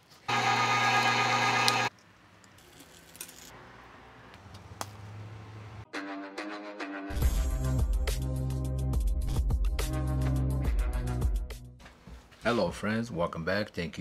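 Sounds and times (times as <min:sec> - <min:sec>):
meat grinder motor humming: 0:00.3 - 0:01.9
intro music: 0:05.9 - 0:11.8.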